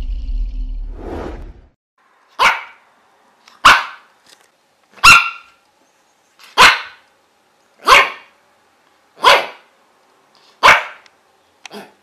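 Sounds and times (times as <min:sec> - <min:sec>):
dog barking: 0:02.4 - 0:02.8, 0:03.6 - 0:04.1, 0:05.0 - 0:05.6, 0:06.5 - 0:07.0, 0:07.8 - 0:08.4, 0:09.2 - 0:09.7, 0:10.6 - 0:11.1.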